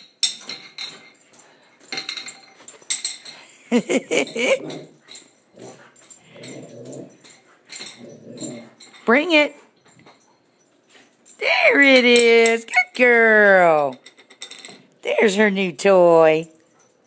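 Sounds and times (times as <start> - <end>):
chew toy and claws clattering on tile: 0.0 - 17.0
dog play growls: 4.2 - 8.8
dog whining: 8.0 - 8.8.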